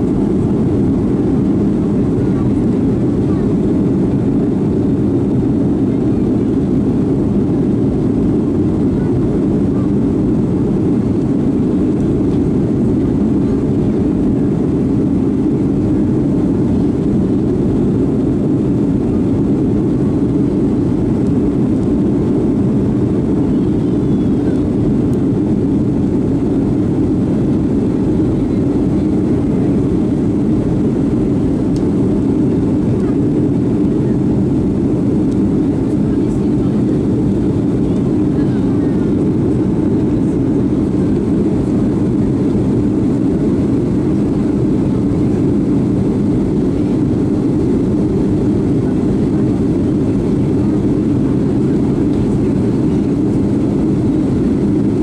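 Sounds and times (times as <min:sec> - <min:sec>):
airplane cabin engine rumble: 0:00.0 - 0:55.0.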